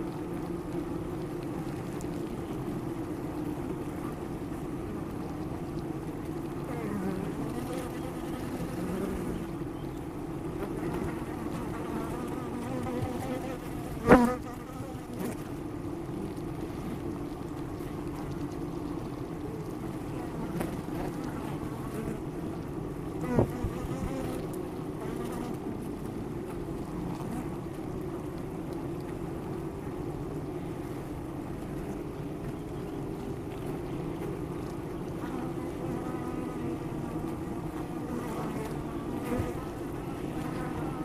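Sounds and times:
bees humming: 0:06.7 - 0:15.4.

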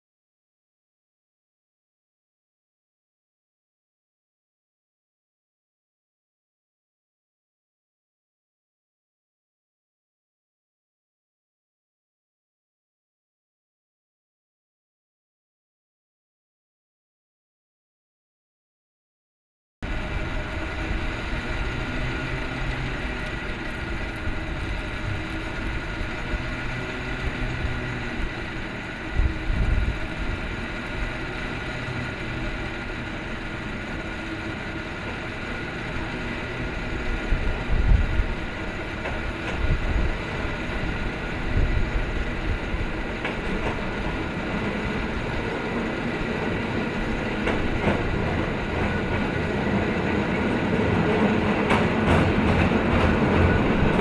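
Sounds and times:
cable car whirring hum: 0:19.8 - 0:54.0.

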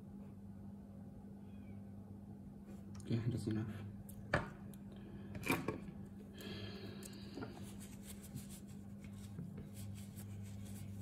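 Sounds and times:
steady low hum: 0:00.0 - 0:11.0
paper tissue rustling: 0:07.6 - 0:11.0.

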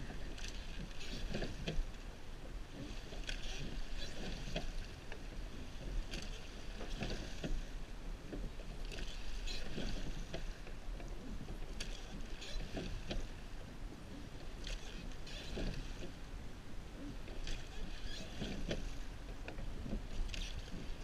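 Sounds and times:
oar strokes splashing water: 0:00.0 - 0:21.0.

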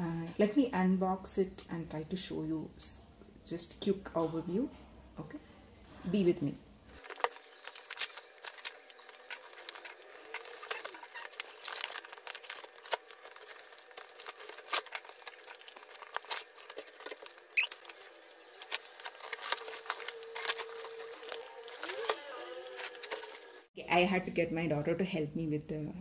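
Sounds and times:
plastic shrink wrap crinkling: 0:06.9 - 0:23.7.

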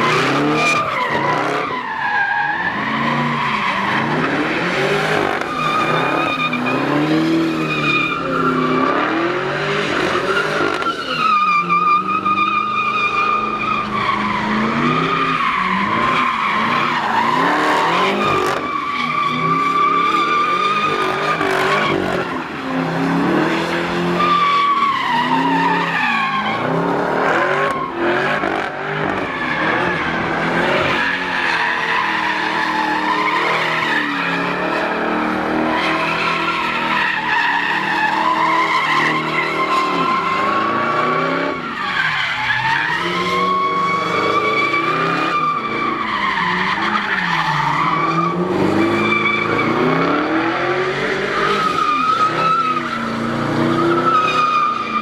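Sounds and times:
car engine revving: 0:00.0 - 0:11.0, 0:12.0 - 0:55.0
tyres squealing: 0:27.7 - 0:50.0.

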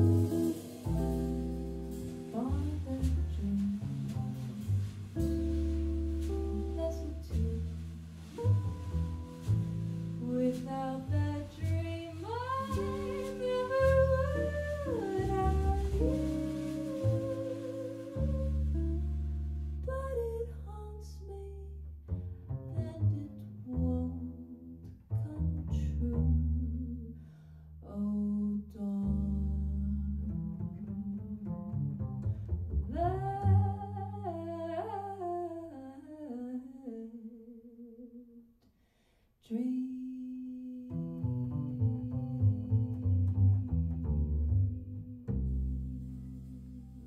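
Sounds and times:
jazz band playing: 0:00.0 - 0:19.8
woman singing: 0:02.1 - 0:05.6, 0:06.3 - 0:07.7, 0:10.2 - 0:19.0, 0:19.8 - 0:21.8, 0:27.9 - 0:30.4, 0:32.9 - 0:38.4, 0:39.4 - 0:47.0.

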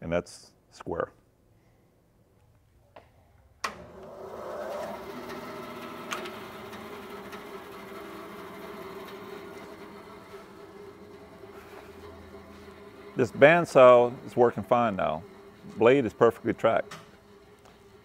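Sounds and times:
bandsaw motor humming: 0:03.7 - 0:18.0.

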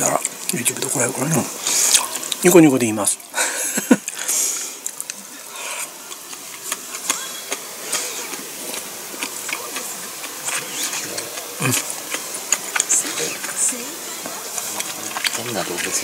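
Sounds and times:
chewing with wet mouth clicks: 0:01.9 - 0:02.5, 0:04.8 - 0:16.0.

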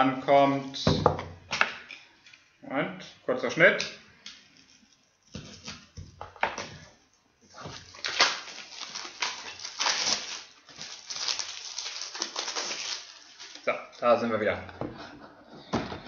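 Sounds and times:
wrapping rustling and crinkling: 0:04.4 - 0:06.0, 0:07.4 - 0:14.6.

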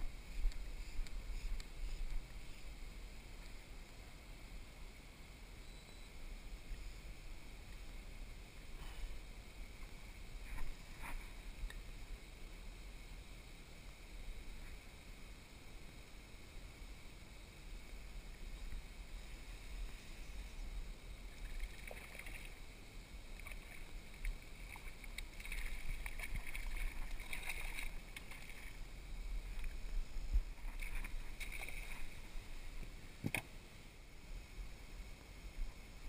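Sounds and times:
fish thrashing and splashing: 0:23.4 - 0:28.8, 0:30.5 - 0:32.3.

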